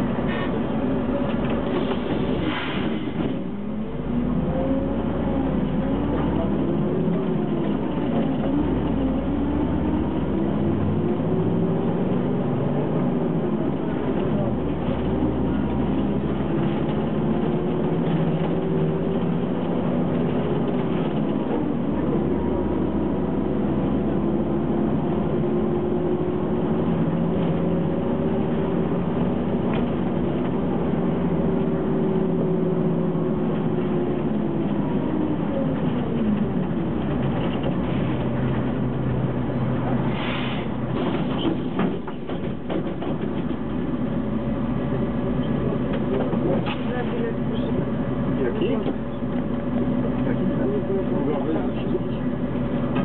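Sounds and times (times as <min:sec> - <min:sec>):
bus diesel engine: 0:00.0 - 0:53.0.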